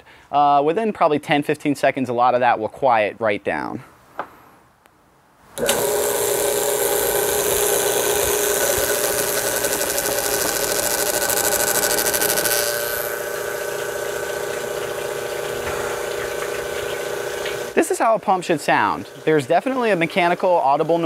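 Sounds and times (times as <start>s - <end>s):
loud pump hiss: 5.6s - 17.8s
pump humming: 5.6s - 21.0s.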